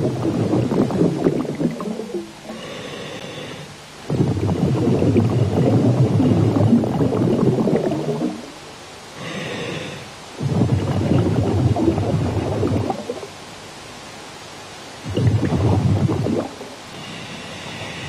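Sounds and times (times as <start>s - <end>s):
gurgling exhaled bubbles: 0.0s - 2.7s, 4.1s - 8.6s, 10.4s - 13.4s, 15.0s - 16.8s
regulator hiss: 0.0s - 18.0s.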